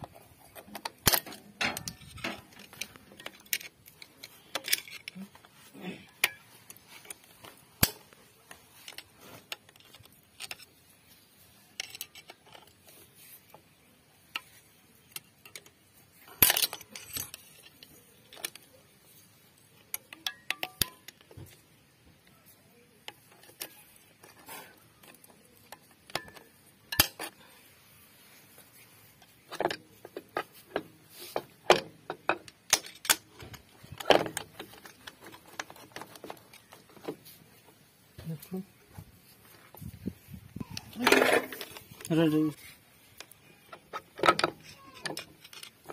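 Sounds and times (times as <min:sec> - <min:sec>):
metallic tool clicks on springs: 0:19.9 - 0:21.2.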